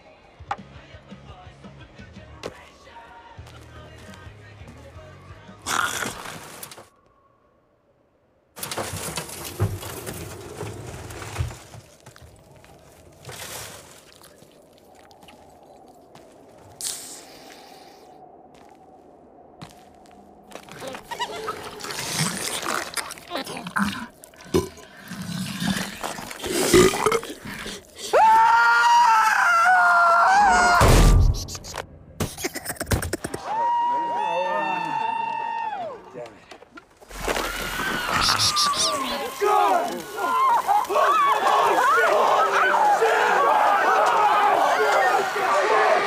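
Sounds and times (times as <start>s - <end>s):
rustling clicking and scraping: 8.6s - 14.6s
long high scream: 28.1s - 30.9s, 33.4s - 36.0s.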